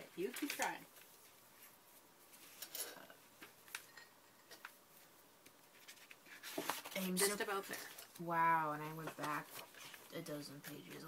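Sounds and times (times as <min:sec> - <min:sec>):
paper pages turning: 0:00.2 - 0:01.7, 0:04.6 - 0:08.3, 0:08.9 - 0:11.0.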